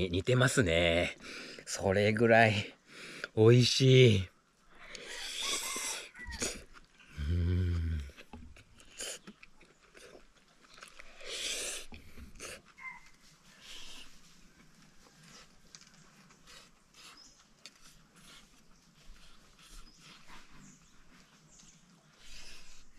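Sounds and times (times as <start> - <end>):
chewing with light clicks: 7.8 - 13.1.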